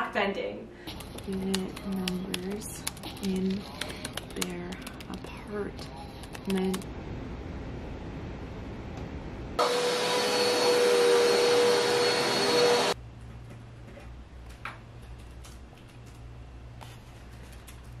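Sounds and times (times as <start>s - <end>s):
low room hum: 0.0s - 9.6s, 12.9s - 18.0s
vacuum cleaner whining: 9.6s - 13.0s.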